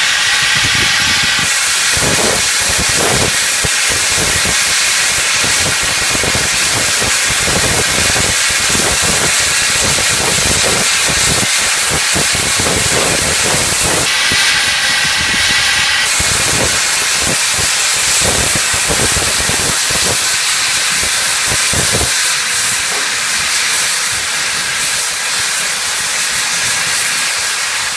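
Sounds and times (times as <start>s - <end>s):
low rumbling: 0.0s - 4.4s
steam locomotive safety valve hiss: 0.0s - 27.9s.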